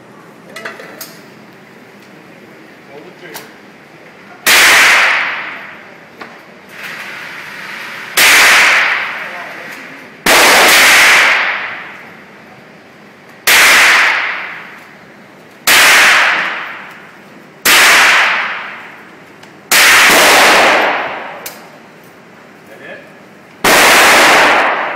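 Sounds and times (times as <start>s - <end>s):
gunshots with echo indoors: 4.4s - 5.8s, 8.2s - 9.4s, 10.2s - 12.1s, 13.4s - 14.8s, 15.6s - 17.0s, 17.6s - 19.0s, 19.7s - 21.5s, 23.6s - 24.9s.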